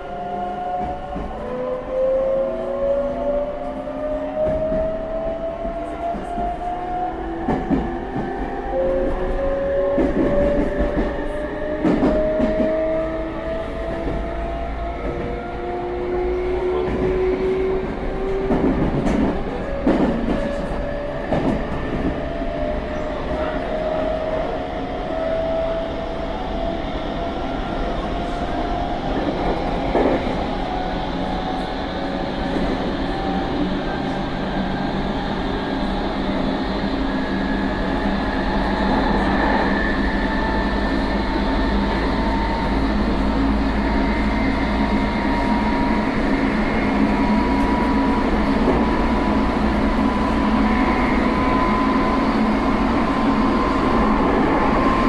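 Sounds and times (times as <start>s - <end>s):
electric train inverter whine: 29.0s - 55.0s.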